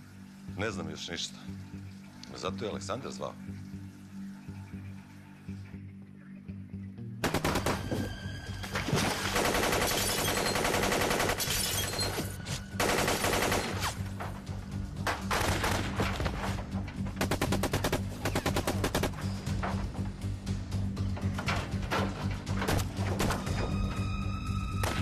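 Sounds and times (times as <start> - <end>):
dramatic film music: 0.0 - 25.0
automatic gunfire: 7.2 - 7.9, 9.4 - 11.5, 12.8 - 13.9, 15.3 - 16.0, 17.2 - 19.2.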